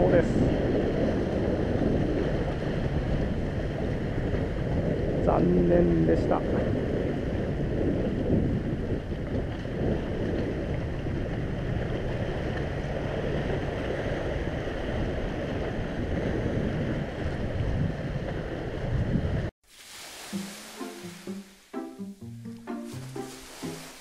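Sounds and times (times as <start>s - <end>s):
wind buffeting microphone: 0.0s - 19.5s
waves washing on concrete: 8.7s - 21.8s, 22.6s - 24.0s.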